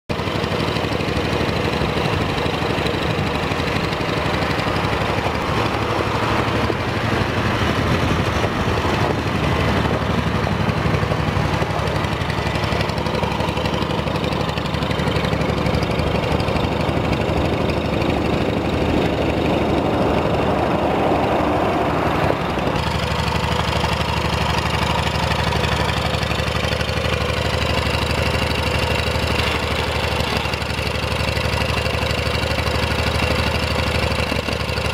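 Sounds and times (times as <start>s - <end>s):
tractor engine chugging: 0.1s - 34.9s.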